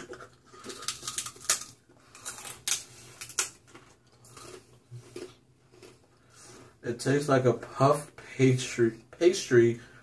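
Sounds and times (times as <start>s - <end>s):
crackers crunching while chewed: 0.0s - 6.8s.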